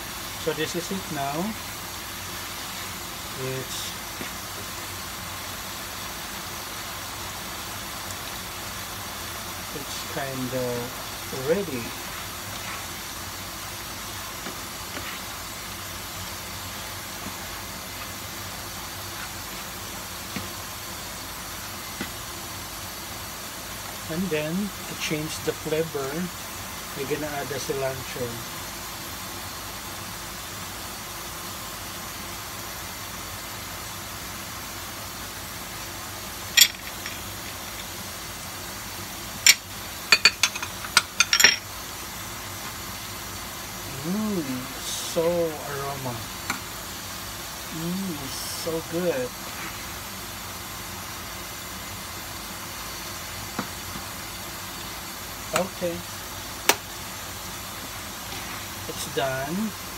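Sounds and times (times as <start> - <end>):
food sizzling in a pan: 0.0 - 59.9
steady hiss: 0.0 - 59.9
kitchenware clinking: 39.5 - 41.6.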